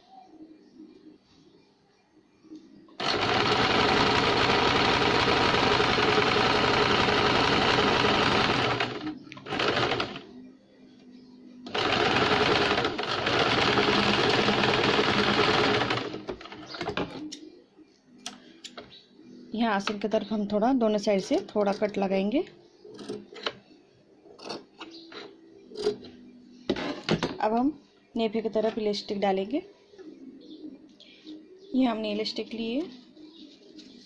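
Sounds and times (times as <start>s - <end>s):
sewing machine stitching: 3.0s - 10.2s, 11.7s - 17.1s.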